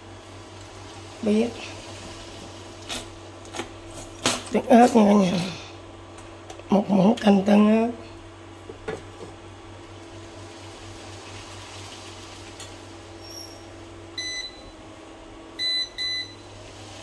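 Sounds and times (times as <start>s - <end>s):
steady low hum: 0.0s - 11.2s
appliance beeps: 13.2s - 16.8s.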